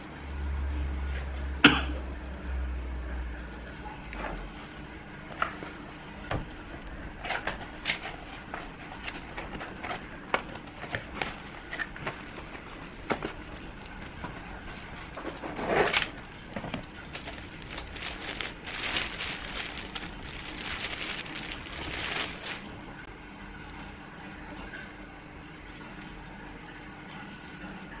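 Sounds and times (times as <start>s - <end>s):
plastic wrap crinkling: 6.8s - 23.0s.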